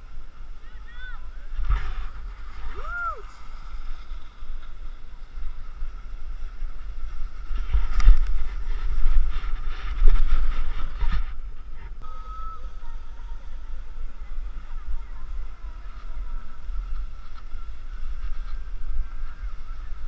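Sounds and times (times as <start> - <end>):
tumbling in snow: 0.0 - 11.8
wind buffeting microphone: 0.0 - 20.0.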